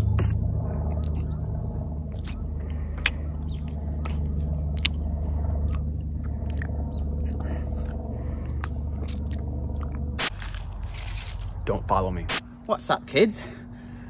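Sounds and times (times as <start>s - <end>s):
steady low hum: 0.0s - 14.0s
sharp mouth clicks: 0.1s - 1.5s, 2.1s - 10.0s
wet smacking and chewing: 0.1s - 10.1s.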